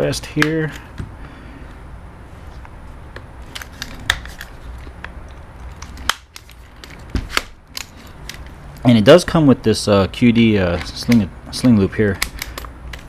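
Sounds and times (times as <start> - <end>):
rifle stock clicking: 12.2 - 13.0.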